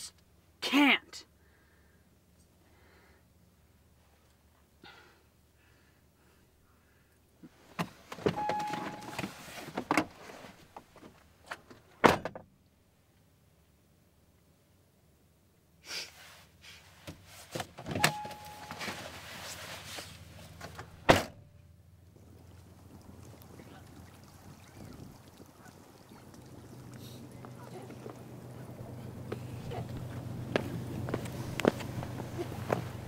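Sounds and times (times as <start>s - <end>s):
rustling of someone climbing out: 7.4s - 12.0s, 16.2s - 21.1s, 27.0s - 33.0s
brief electronic beep: 8.4s - 9.2s, 18.0s - 18.9s
car door slamming: 20.7s - 21.4s.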